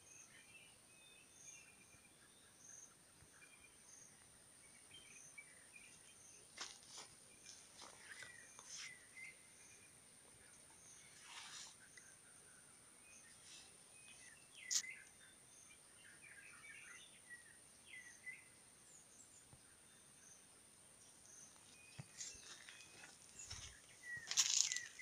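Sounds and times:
short bird chirps: 13.2s - 15.3s.

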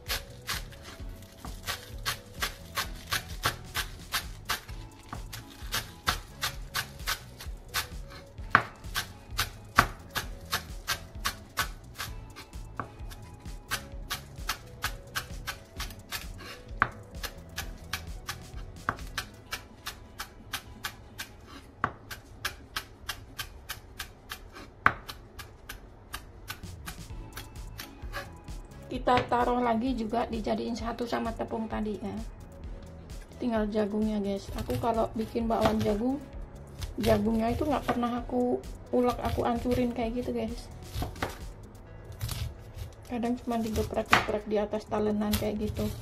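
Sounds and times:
knife chopping on wooden board: 0.0s - 12.1s, 12.7s - 28.3s, 35.5s - 36.0s, 36.8s - 38.0s, 40.9s - 41.5s, 42.2s - 42.9s, 43.6s - 44.3s.

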